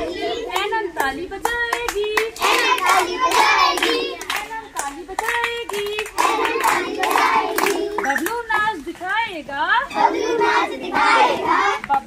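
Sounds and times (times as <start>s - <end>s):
children singing in unison: 0.0s - 4.8s, 5.7s - 8.2s, 9.9s - 11.8s
hands clapping: 0.5s - 8.4s.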